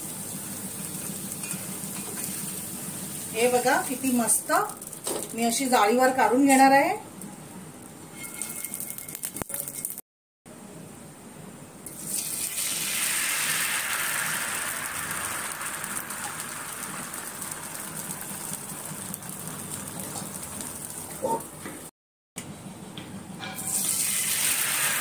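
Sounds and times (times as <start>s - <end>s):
batter sizzling in hot pan: 0.0s - 5.6s, 11.9s - 21.3s, 23.7s - 25.0s.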